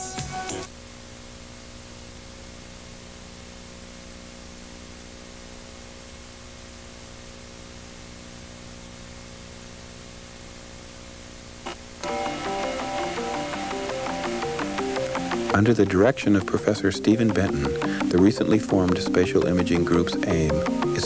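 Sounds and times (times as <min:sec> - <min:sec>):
music: 0:00.0 - 0:00.7, 0:12.0 - 0:21.0
mains hum with buzzing overtones: 0:00.0 - 0:21.0
tape hiss: 0:00.0 - 0:21.0.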